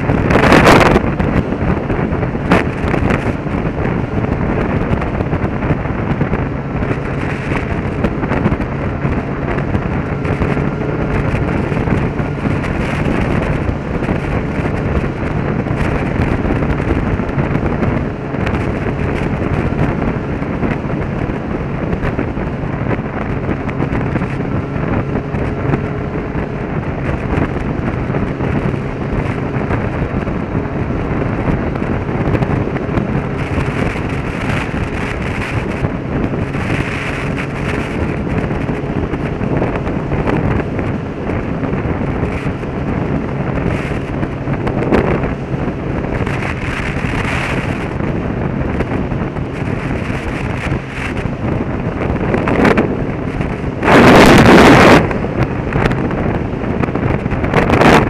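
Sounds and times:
motorcycle engine hum: 0.0 - 58.0
wind buffeting microphone: 0.0 - 58.0.

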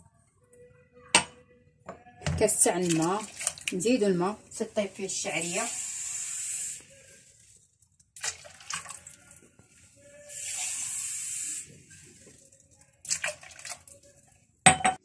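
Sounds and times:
water pouring into a pot: 2.5 - 4.0, 5.0 - 14.4.

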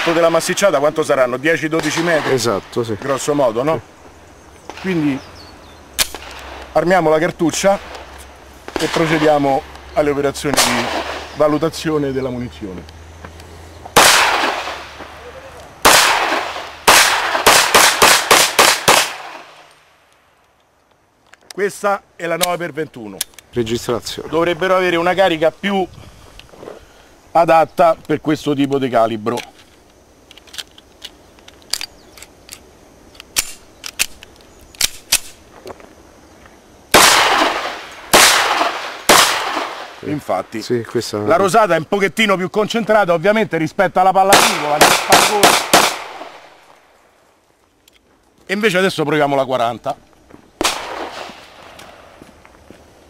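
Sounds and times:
pistol handling clicks: 6.0 - 6.7, 22.4 - 23.5, 29.3 - 35.4, 47.8 - 48.1
pistol shots: 8.7 - 9.6, 10.5 - 11.4, 14.0 - 15.1, 15.8 - 19.6, 36.9 - 40.0, 44.3 - 46.5, 50.6 - 51.7.

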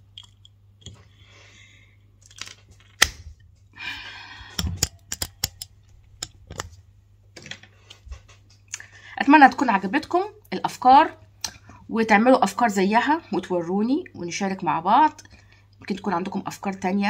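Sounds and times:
phone handling clicks and taps: 4.6 - 6.8.

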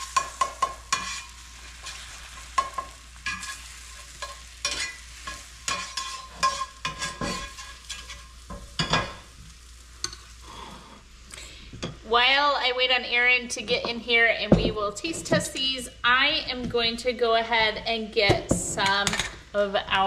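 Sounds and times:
fork clinking and scraping a pan: 0.0 - 9.2, 10.0 - 10.3
egg sizzling in a skillet: 0.0 - 11.9.

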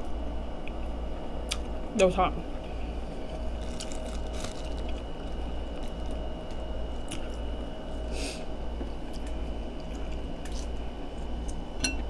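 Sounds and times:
steady low hum: 0.0 - 12.0
fingers peeling shrimp shells: 3.5 - 5.0.

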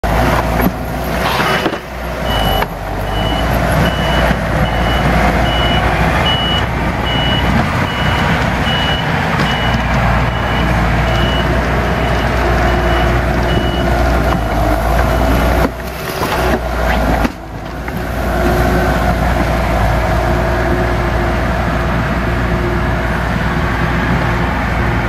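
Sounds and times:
diesel engines running hard: 0.0 - 25.0
backup alarm beeping: 2.2 - 14.5.

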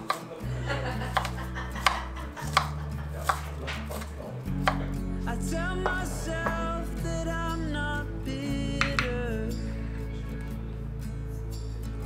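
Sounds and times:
knife chopping on cutting board: 0.0 - 0.3, 1.1 - 5.0, 8.8 - 9.1
plucked melody music: 0.0 - 12.0.

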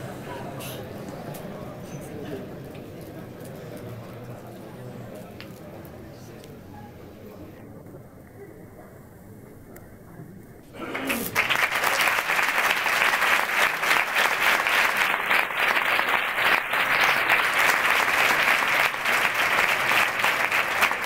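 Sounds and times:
audience applauding: 10.8 - 21.0.

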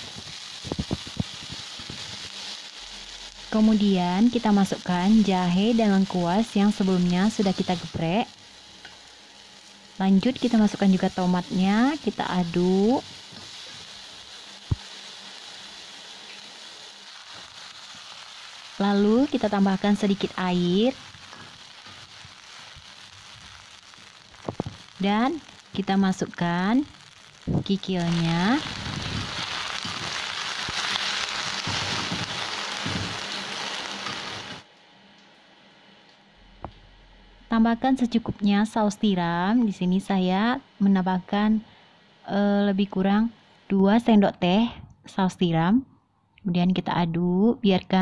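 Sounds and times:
vegetables sizzling in hot oil: 0.0 - 35.1.

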